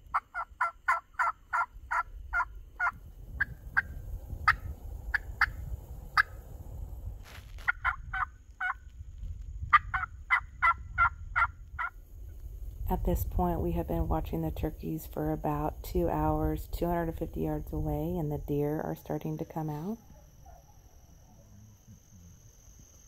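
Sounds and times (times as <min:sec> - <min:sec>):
turkey calling: 0:00.1 - 0:05.6, 0:07.7 - 0:08.8, 0:09.7 - 0:12.0
low rumble: 0:02.1 - 0:19.6.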